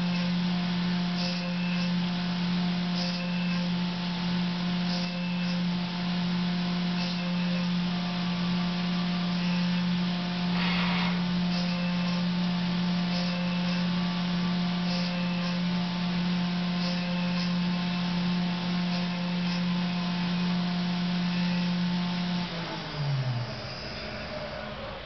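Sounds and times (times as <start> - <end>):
milling machine spindle humming: 0.0 - 25.0
coolant hiss: 9.3 - 24.6.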